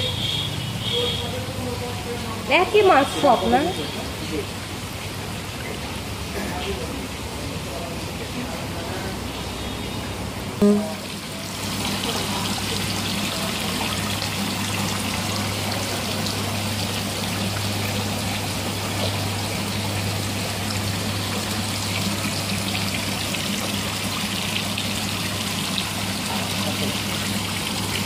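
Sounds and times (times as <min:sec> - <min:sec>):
water pouring into tank: 0:11.0 - 0:28.0.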